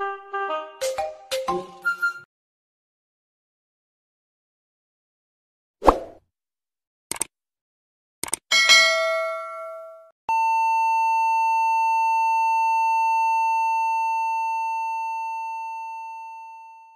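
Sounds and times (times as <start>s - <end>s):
bell ding: 8.5s - 10.1s.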